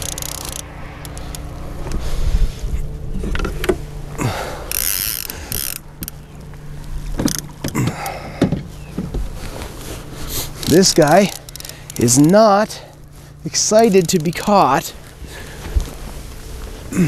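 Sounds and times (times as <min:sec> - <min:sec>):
fishing reel clicking: 0:00.0 - 0:01.5, 0:04.7 - 0:06.2, 0:10.6 - 0:12.6
outboard motor humming: 0:00.0 - 0:17.0.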